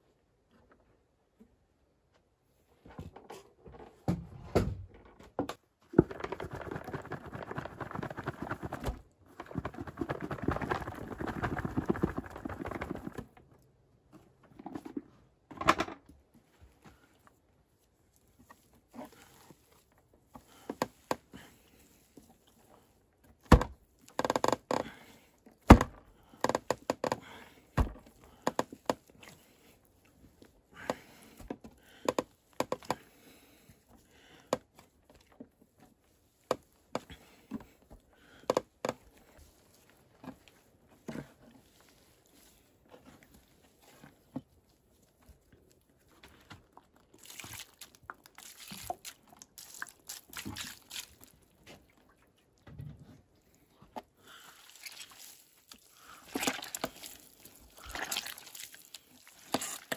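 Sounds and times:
clay soil crumbling: 5.8 - 15.4, 16.1 - 52.2, 53.4 - 59.9.

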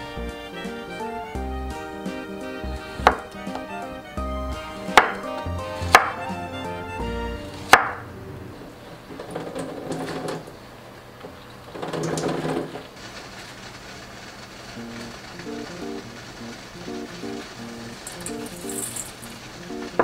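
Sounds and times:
background music: 0.0 - 8.5, 14.8 - 20.0.

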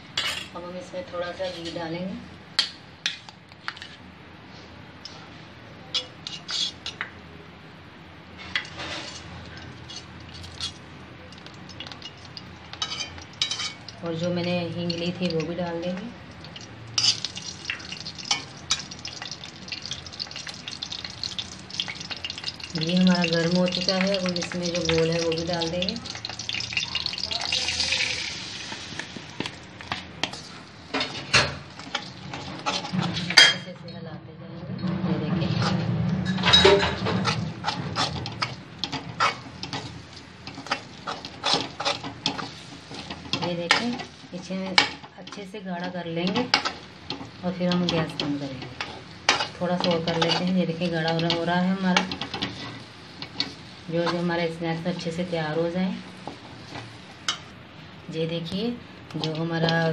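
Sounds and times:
ghee sizzling and crackling: 0.7 - 33.6, 35.2 - 59.9
spoon scraping a pan: 1.4 - 1.9, 5.9 - 7.0, 8.4 - 10.8, 11.4 - 13.9, 17.0 - 17.5, 21.3 - 33.6, 35.5 - 45.5, 46.2 - 57.5
sharp oil spatters: 16.3 - 29.1.

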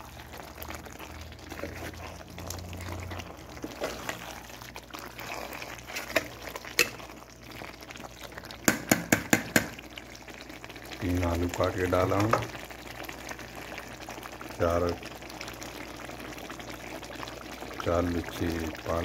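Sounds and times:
thick curry bubbling in a pot: 0.0 - 19.0
spoon stirring: 0.1 - 8.0
spoon knocking on pot: 8.7 - 9.8.

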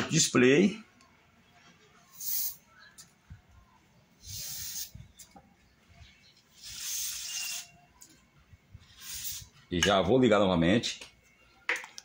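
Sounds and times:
aerosol spray can hissing: 2.1 - 2.6, 4.2 - 5.0, 6.6 - 7.7, 9.0 - 9.5.

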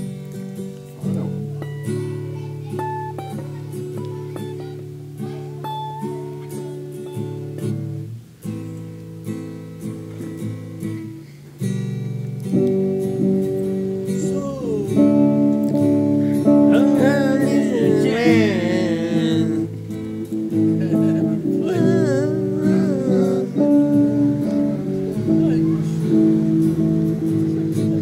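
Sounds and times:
guitar chords strummed: 0.0 - 28.0
guitar melody with bending notes: 0.0 - 28.0.

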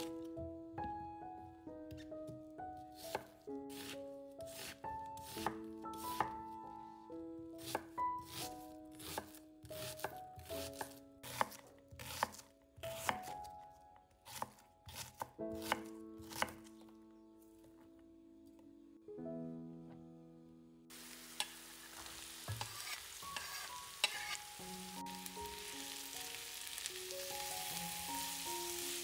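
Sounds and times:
background music with held notes: 0.0 - 29.0
knife chopping on cutting board: 3.0 - 6.4, 7.6 - 13.4, 14.3 - 16.6, 22.5 - 24.4.

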